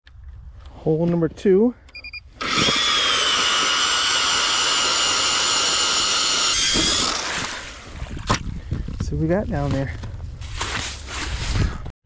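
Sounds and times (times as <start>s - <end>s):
power ice auger drilling: 2.4s - 8.4s.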